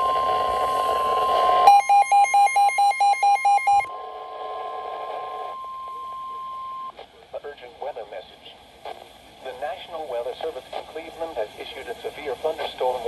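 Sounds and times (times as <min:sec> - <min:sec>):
rapid beeping alarm: 0:00.0 - 0:03.9
steady warning alarm tone: 0:00.0 - 0:03.9.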